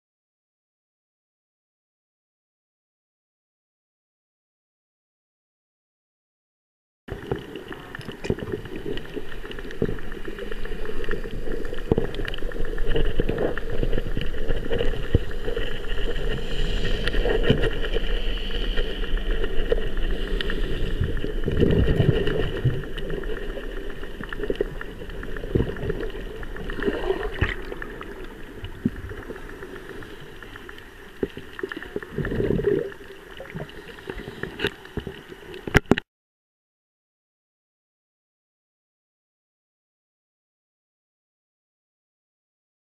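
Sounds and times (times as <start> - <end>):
underwater earthquake rumble: 7.1 - 36.0.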